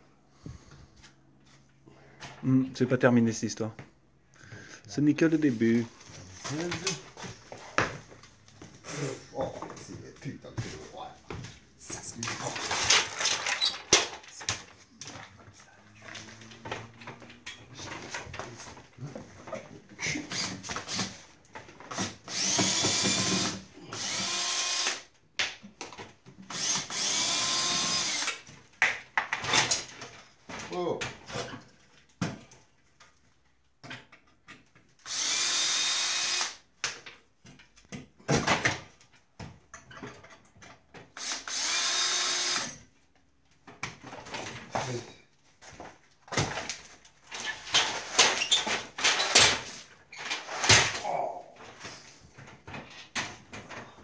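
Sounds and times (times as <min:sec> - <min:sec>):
power drill whining: 0:22.0 - 0:25.1, 0:26.5 - 0:28.4, 0:35.0 - 0:36.6, 0:41.2 - 0:42.8, 0:50.2 - 0:51.0.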